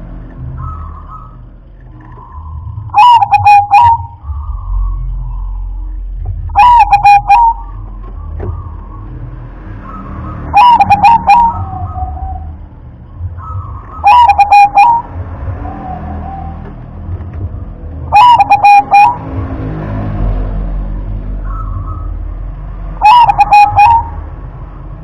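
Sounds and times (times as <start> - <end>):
dove cooing in staccato notes: 2.9 - 4.5, 6.3 - 8.7, 10.5 - 12.5, 13.4 - 15.1, 18.1 - 19.3, 23.0 - 24.2.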